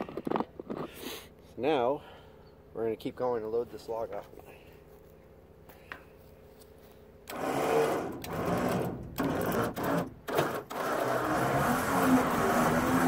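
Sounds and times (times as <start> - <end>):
electric winch motor running: 7.3 - 13.0.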